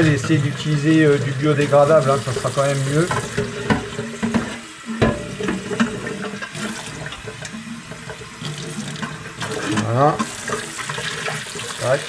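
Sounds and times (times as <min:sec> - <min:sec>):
tap water running over metal tank: 0:00.0 - 0:12.0
metal tank knocks: 0:03.1 - 0:06.0.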